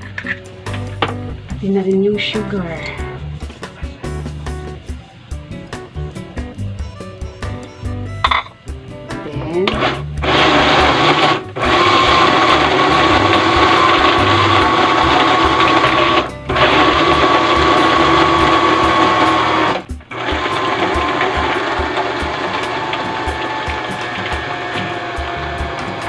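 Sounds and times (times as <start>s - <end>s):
blender running: 9.7s - 26.0s.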